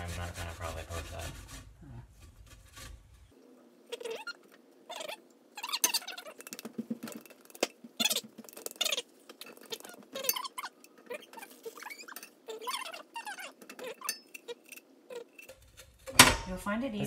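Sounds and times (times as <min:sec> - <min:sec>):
ginger scraped on metal grater: 0:00.0 - 0:03.4.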